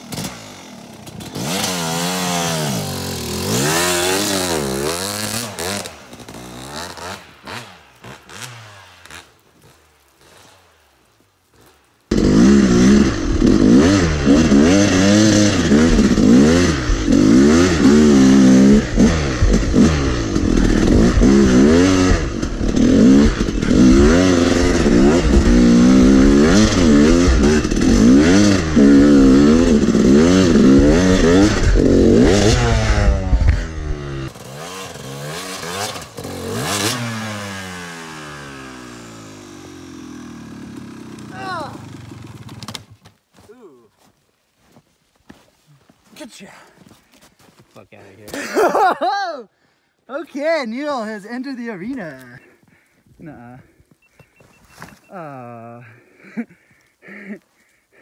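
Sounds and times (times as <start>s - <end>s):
dirt bike engine revving: 0.0s - 10.7s, 12.1s - 42.9s.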